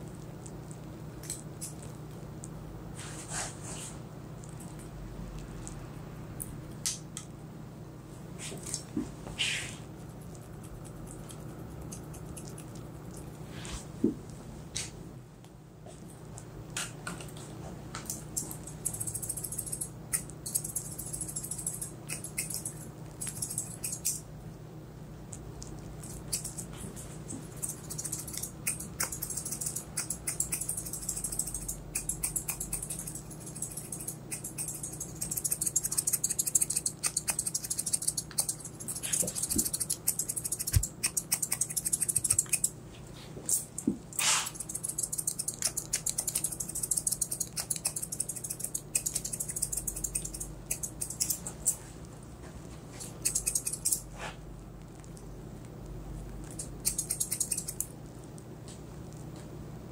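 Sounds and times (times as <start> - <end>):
scissors snipping hair: 1.2 - 1.9, 18.0 - 24.3, 26.0 - 42.8, 43.5 - 51.8, 53.2 - 54.1, 56.5 - 57.9.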